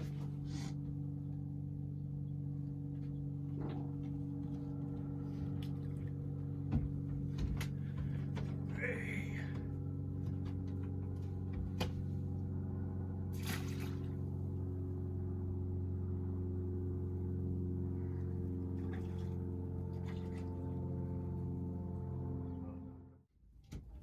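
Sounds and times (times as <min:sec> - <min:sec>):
low mechanical hum: 0:00.0 - 0:24.0
fish splashing into water: 0:13.3 - 0:14.3.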